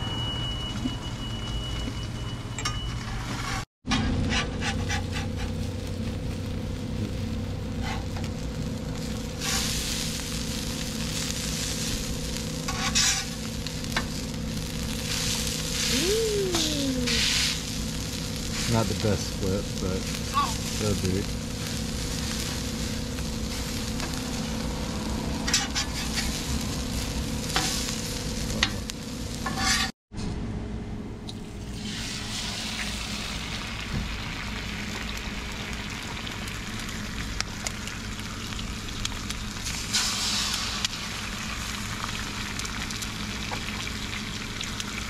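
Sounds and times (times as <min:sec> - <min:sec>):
metal spatula scraping: 0:03.0 - 0:05.6, 0:12.7 - 0:13.4, 0:25.4 - 0:26.4, 0:29.4 - 0:29.9
food sizzling on griddle: 0:03.9 - 0:29.9, 0:31.6 - 0:45.0.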